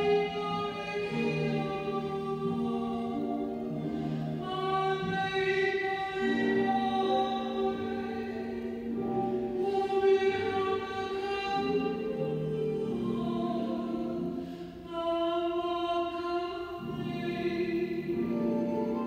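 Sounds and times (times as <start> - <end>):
choir singing in harmony: 0.0 - 14.8.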